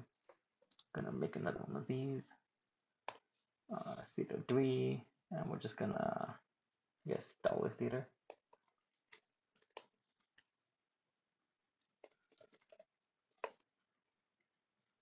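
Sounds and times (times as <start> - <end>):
faint keyboard typing: 8.2 - 10.5, 12.0 - 13.7.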